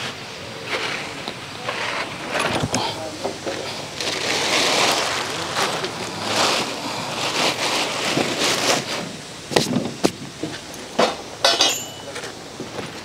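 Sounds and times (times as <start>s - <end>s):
rustling and scraping: 0.0s - 13.0s
short metallic clatter: 11.0s - 12.3s.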